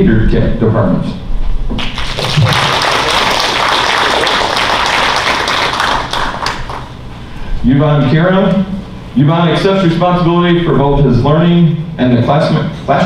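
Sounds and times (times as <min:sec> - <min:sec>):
audience applauding: 0:01.8 - 0:07.0.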